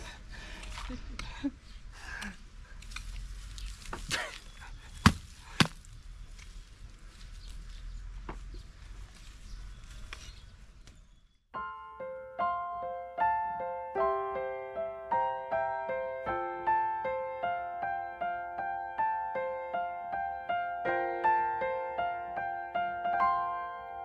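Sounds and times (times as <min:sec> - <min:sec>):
outdoor background noise: 0:00.0 - 0:11.5
hoe chopping into soil: 0:03.9 - 0:05.9
piano music: 0:11.6 - 0:24.0.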